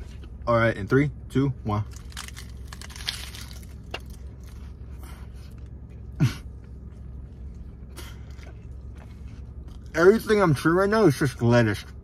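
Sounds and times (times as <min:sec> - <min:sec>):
steady low hum: 0:00.0 - 0:12.0
person chewing food: 0:01.9 - 0:09.9.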